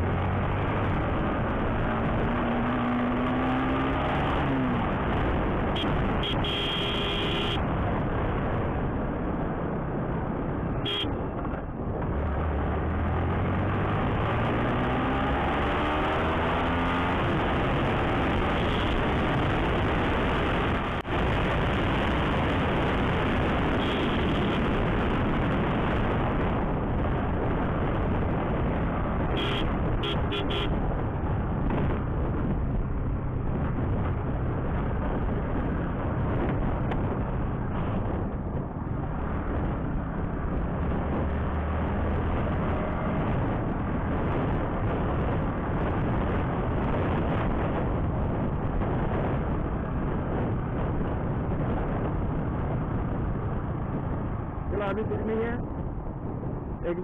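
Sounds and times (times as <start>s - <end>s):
wind rushing over microphone: 0.0s - 57.0s
horn short beeps: 5.8s - 7.6s.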